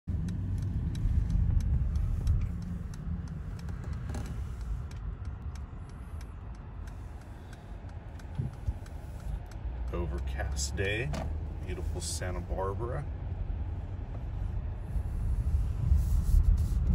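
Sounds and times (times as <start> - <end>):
car engine and tyres rumbling: 0.0 - 16.9
faint light clicks: 0.1 - 11.0.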